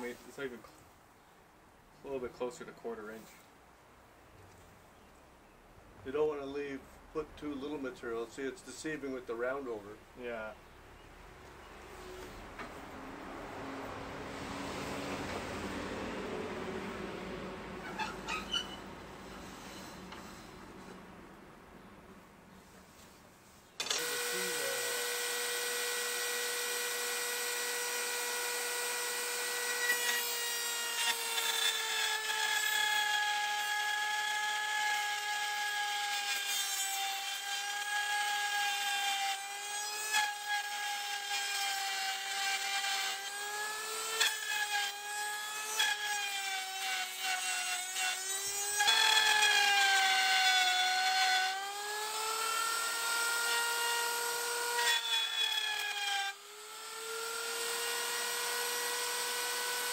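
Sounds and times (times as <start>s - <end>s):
wood router whining: 16.9s - 21.0s, 23.8s - 59.9s.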